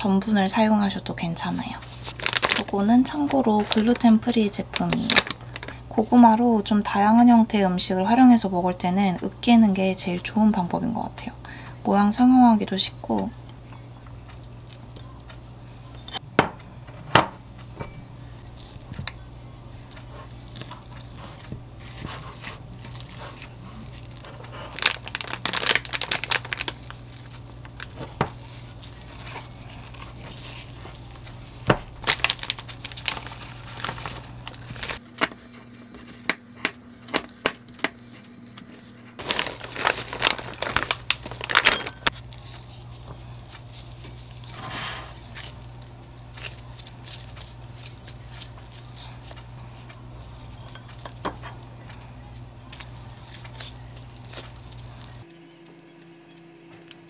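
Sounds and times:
low steady hum: 0.0s - 57.0s
plastic bag crinkling: 1.4s - 7.0s, 18.4s - 36.3s, 37.3s - 55.4s.

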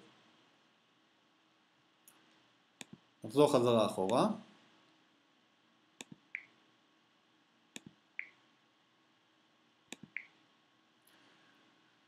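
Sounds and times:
computer mouse clicks: 2.8s - 3.0s, 6.0s - 6.5s, 9.9s - 10.4s.

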